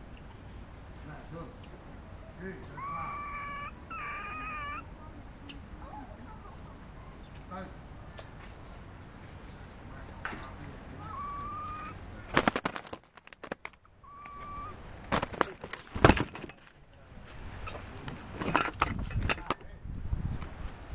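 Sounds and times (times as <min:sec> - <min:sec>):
whistled calls: 0:02.2 - 0:05.6, 0:10.4 - 0:12.0, 0:14.0 - 0:15.1.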